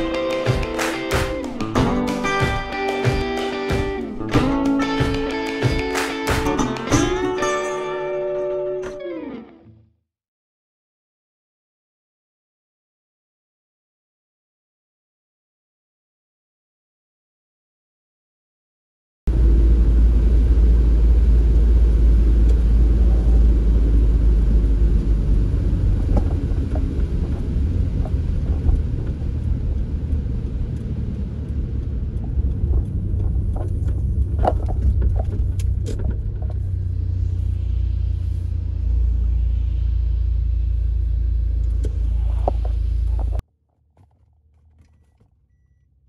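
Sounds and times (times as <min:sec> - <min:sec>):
car engine and tyre rumble: 0:19.3 - 0:46.0.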